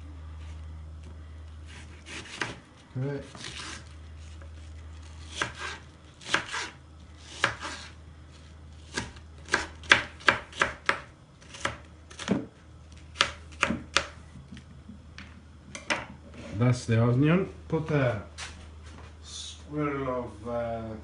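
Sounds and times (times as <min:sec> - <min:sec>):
knife chopping on cutting board: 0:01.7 - 0:02.6, 0:05.2 - 0:07.9, 0:08.9 - 0:12.5, 0:13.1 - 0:14.2.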